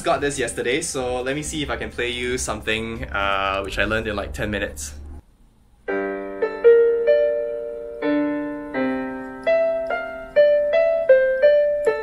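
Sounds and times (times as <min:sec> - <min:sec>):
digital keyboard piano tune: 0:05.9 - 0:12.0.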